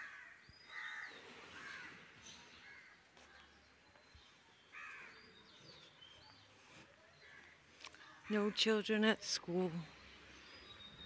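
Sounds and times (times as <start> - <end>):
crows cawing: 0.0 - 3.0, 4.7 - 5.2
small birds chirping: 0.0 - 11.0.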